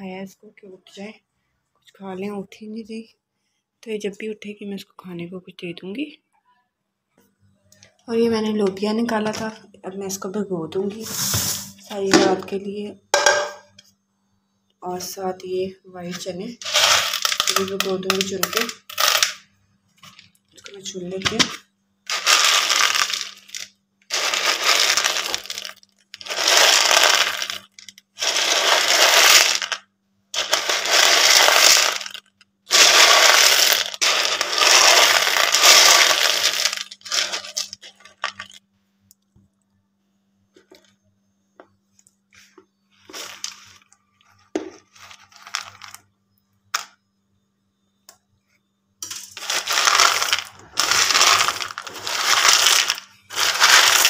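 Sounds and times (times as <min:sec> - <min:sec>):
dried beans rattling: 0:16.0 - 0:38.6, 0:43.0 - 0:43.9, 0:44.6 - 0:46.1, 0:49.0 - 0:54.0
dried chickpeas rattling in plastic bowl: 0:16.1 - 0:38.6, 0:43.1 - 0:43.8, 0:44.8 - 0:46.0, 0:49.0 - 0:54.0.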